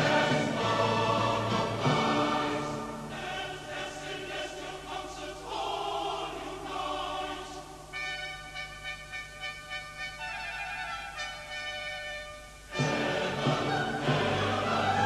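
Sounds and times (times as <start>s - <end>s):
choir singing sustained chords: 0.0s - 15.0s
bright trumpet tones: 7.9s - 14.1s.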